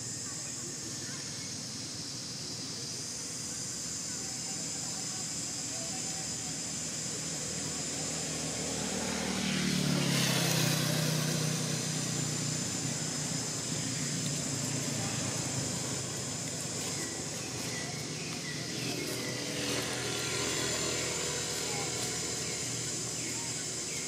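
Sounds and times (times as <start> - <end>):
faint distant voices: 0.0 - 24.0
vehicle engine passing: 8.4 - 24.0.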